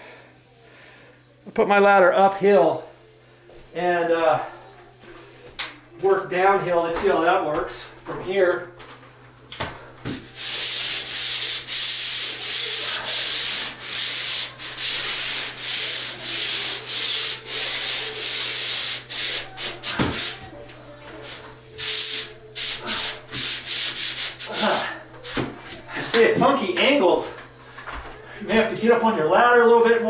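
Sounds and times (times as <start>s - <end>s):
pole sander rasping on drywall: 10.3s - 20.4s, 21.2s - 25.5s.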